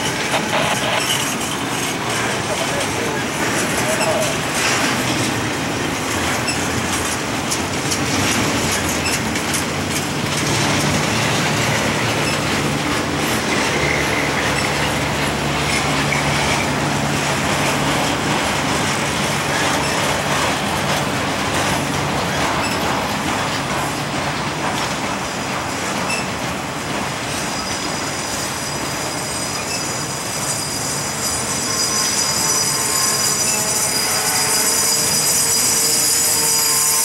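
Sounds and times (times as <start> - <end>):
faint wheel squeal: 0.0 - 5.0, 22.6 - 22.9, 27.3 - 37.0
train wheels rumbling on rail: 0.0 - 37.0.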